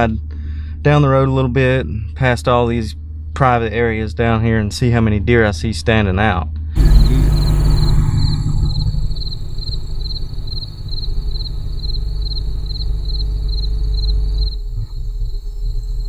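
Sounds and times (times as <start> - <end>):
insect chirping: 6.8 - 16.0
vehicle rumbling: 6.8 - 16.0.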